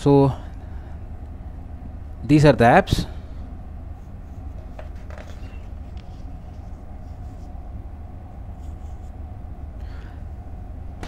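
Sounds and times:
steady low hum: 0.0 - 11.0
book pages turning: 4.3 - 7.6.

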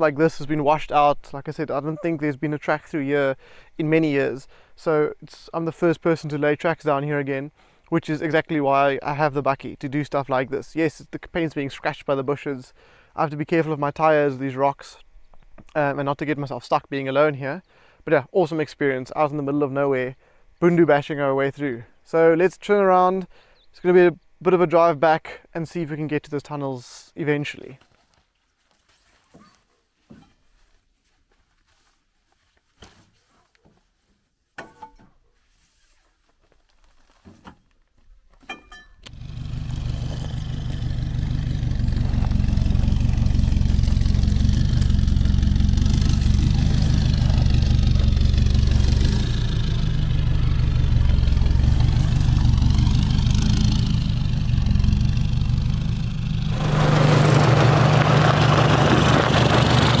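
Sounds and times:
tyres crunching on gravel: 39.1 - 55.8, 56.4 - 60.0
pickup truck engine running: 39.1 - 60.0.

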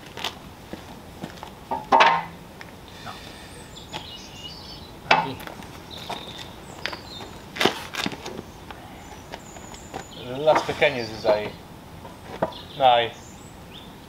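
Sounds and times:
wood-on-wood knocks: 1.7 - 2.3
bird chirps: 2.9 - 7.6, 8.3 - 11.6, 12.4 - 14.0.

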